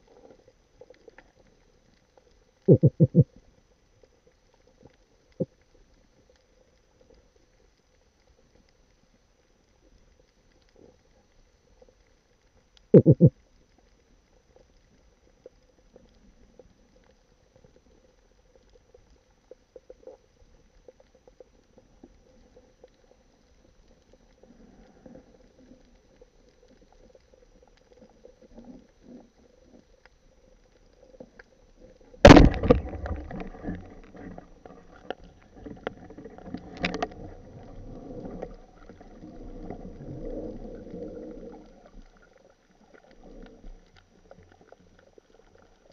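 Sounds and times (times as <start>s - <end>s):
faint crackling: 0.0s - 45.9s
underwater rattling and scraping: 23.8s - 45.9s
speargun firing crack: 32.3s - 33.3s.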